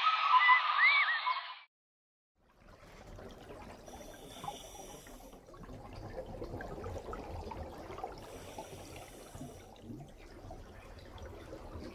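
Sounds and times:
underwater crackling and bubbling: 2.4s - 11.9s.

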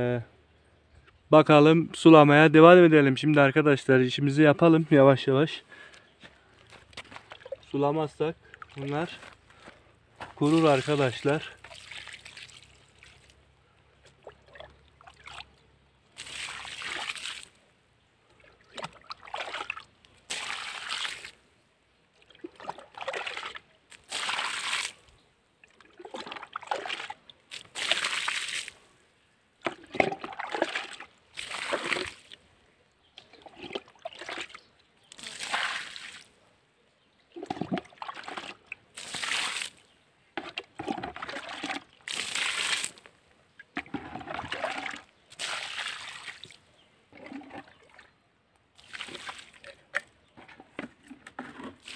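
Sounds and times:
water splashing onto soil: 8.5s - 9.4s, 10.2s - 17.6s, 18.4s - 21.4s, 22.3s - 25.2s, 25.8s - 28.8s, 29.6s - 32.4s, 33.5s - 36.4s, 37.4s - 43.1s, 43.7s - 46.6s, 48.7s - 50.1s.

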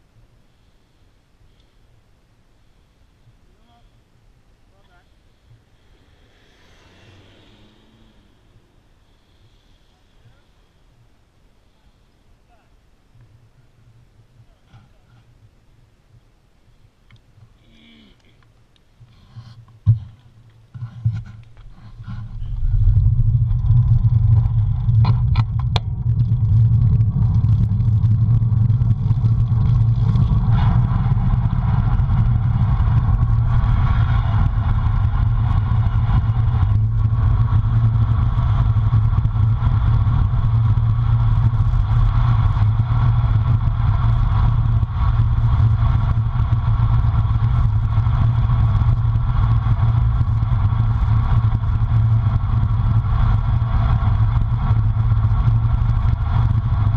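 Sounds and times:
wind buffeting microphone: 21.1s - 56.9s.

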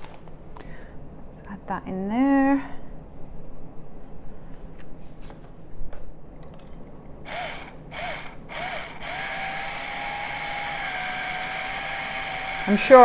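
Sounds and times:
electric salt grinder whirring: 7.3s - 13.0s.

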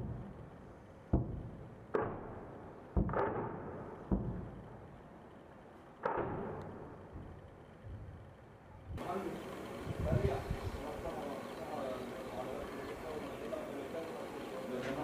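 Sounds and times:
distant explosions: 1.1s - 4.8s.

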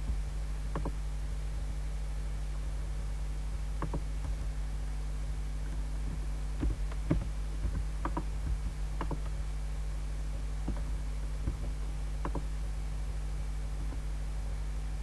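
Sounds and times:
low electrical hum: 0.0s - 15.0s
computer mouse clicking: 0.7s - 1.0s, 3.8s - 4.5s, 6.6s - 9.4s, 10.6s - 12.5s.

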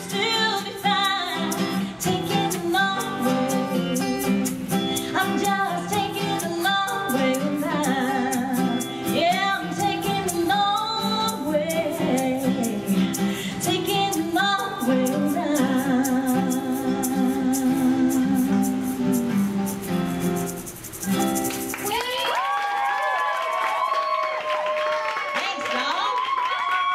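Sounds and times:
woman singing country song: 0.0s - 19.6s
strummed acoustic strings: 0.0s - 22.0s.

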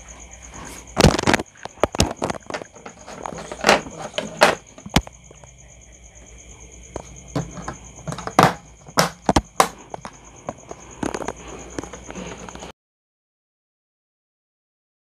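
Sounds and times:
wires shifting: 0.0s - 5.5s, 6.9s - 12.7s.

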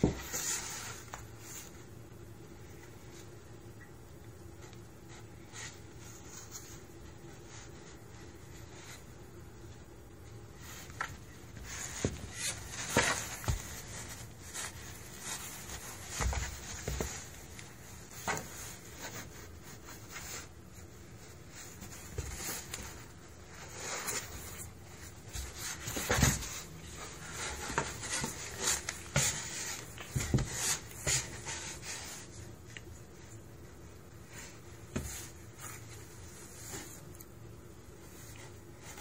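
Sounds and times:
paws bumping cardboard: 11.6s - 19.2s, 25.2s - 32.2s.

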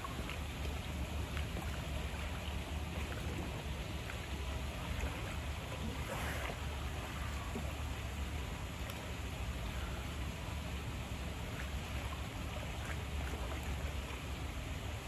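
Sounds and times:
rushing water: 0.0s - 15.0s.

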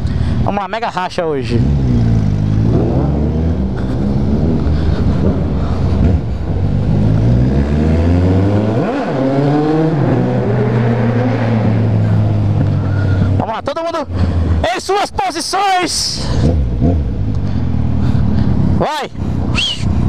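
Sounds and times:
motorcycle engine accelerating: 1.4s - 13.4s, 16.3s - 18.8s.

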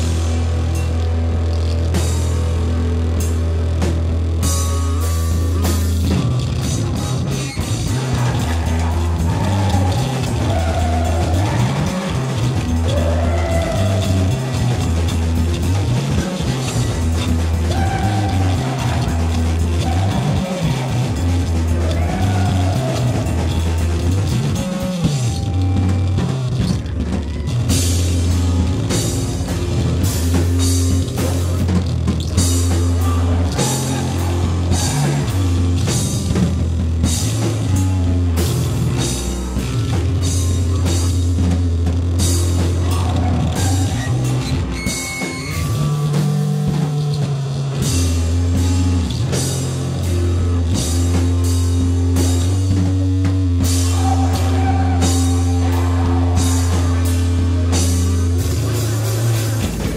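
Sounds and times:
deep bass notes: 0.0s - 59.9s
drum kit: 0.0s - 59.9s
guitar: 0.0s - 59.9s.

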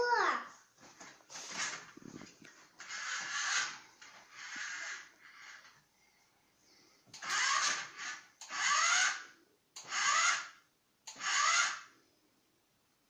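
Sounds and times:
wheels spinning against cushion: 0.8s - 5.8s, 7.2s - 9.2s
toy car electric motor whirring: 2.8s - 5.8s, 7.2s - 11.9s.

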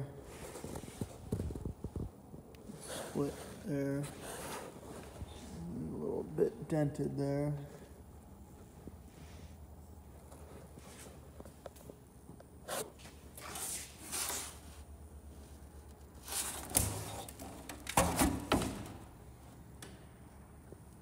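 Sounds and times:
scuffs and rustles of handling: 12.6s - 17.5s.

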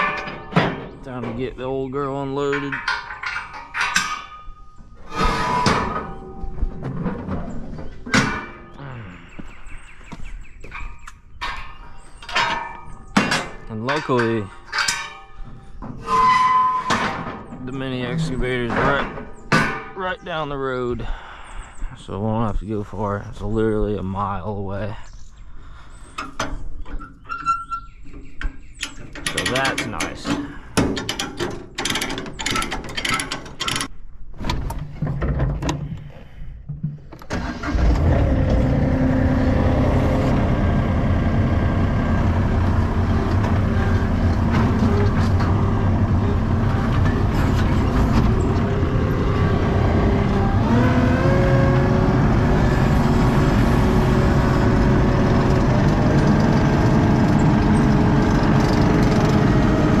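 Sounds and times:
diesel engine running: 17.7s - 19.0s, 37.3s - 60.0s.

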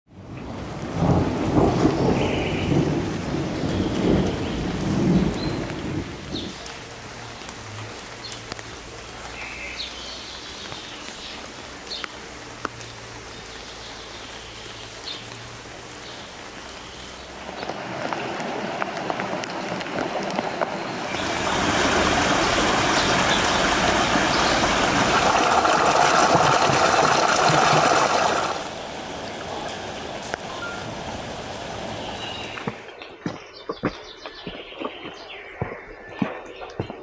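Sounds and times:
steady rain: 0.1s - 33.0s
thunder rumbling: 0.6s - 6.6s, 17.4s - 31.9s.

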